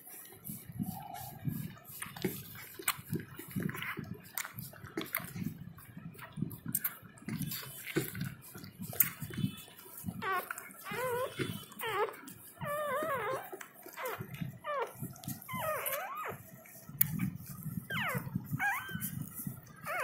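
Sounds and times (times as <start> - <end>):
puppy crying with high squeals: 10.2 - 16.5, 17.9 - 19.2.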